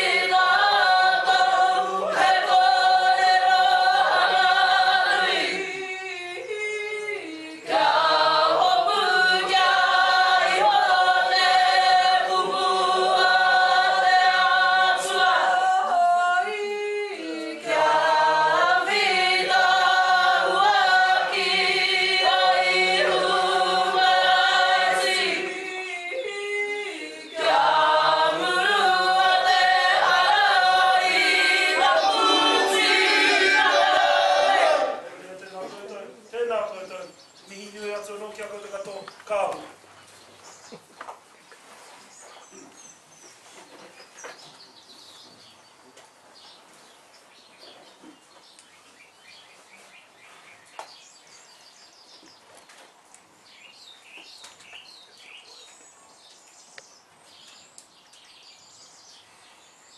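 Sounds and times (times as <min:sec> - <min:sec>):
group of men and women singing: 0:00.0 - 0:35.2.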